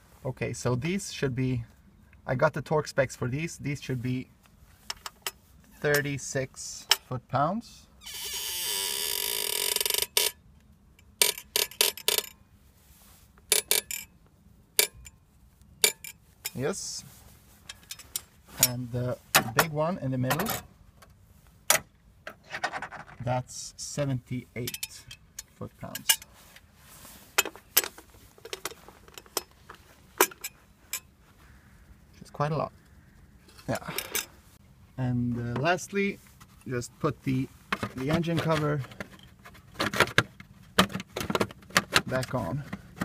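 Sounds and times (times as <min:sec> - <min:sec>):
steel tools clinking: 0:15.8 - 0:16.6, 0:17.6 - 0:18.9, 0:24.6 - 0:26.3.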